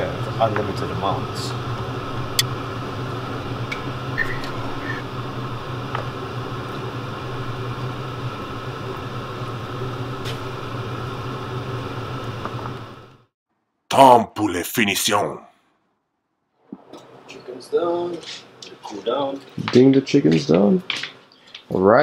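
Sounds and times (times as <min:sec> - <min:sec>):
steady mechanical hum: 0:00.0 - 0:13.3.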